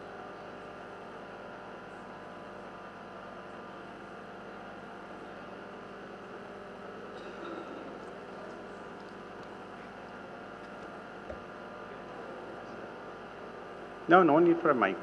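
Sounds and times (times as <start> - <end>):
electrical hum with hiss: 0.0 - 15.0.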